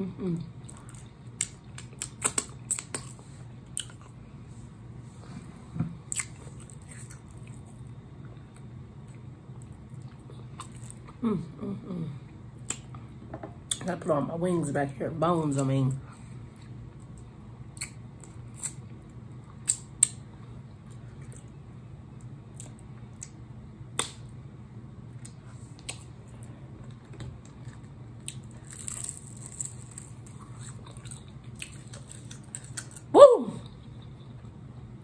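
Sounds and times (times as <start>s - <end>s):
steady low hum: 0.0s - 35.0s
lip smacks and mouth clicks: 0.8s - 3.2s, 19.6s - 20.2s, 24.0s - 24.3s, 25.2s - 26.1s.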